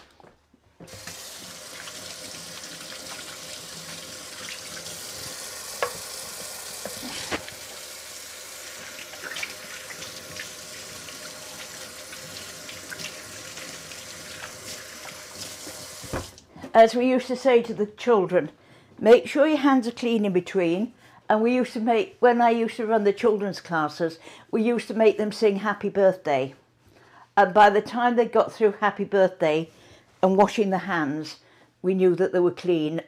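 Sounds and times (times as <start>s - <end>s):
tap water running over hands: 0.9s - 16.5s.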